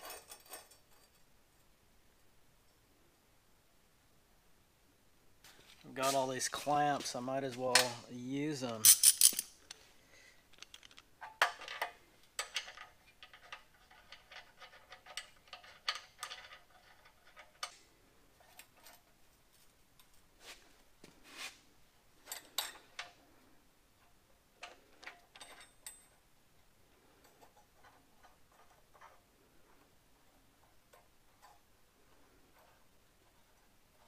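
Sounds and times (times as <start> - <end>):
metal clamps clicking and clinking: 8.6 - 9.8, 10.5 - 17.8.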